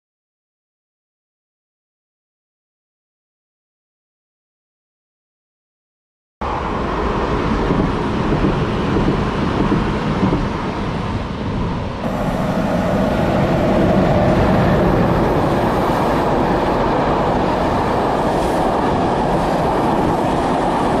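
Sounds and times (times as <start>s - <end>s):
train wheels rumbling on rails: 6.4s - 21.0s.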